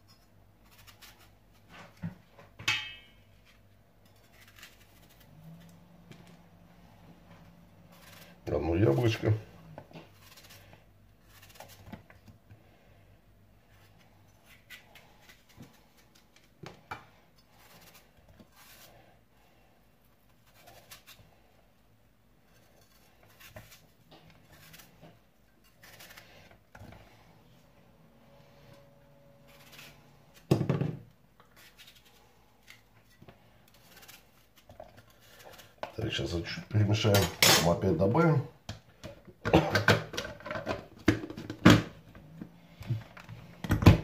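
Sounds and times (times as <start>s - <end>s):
knife slicing an apple: 0.6s - 2.0s, 3.4s - 6.3s, 7.8s - 12.4s, 20.3s - 21.5s, 22.4s - 27.0s, 28.7s - 30.7s.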